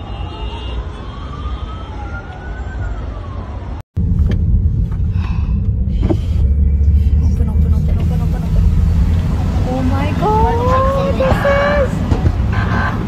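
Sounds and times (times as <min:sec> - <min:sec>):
emergency vehicle siren wailing: 0:00.0 - 0:03.8
road and wind noise in car: 0:02.2 - 0:13.0.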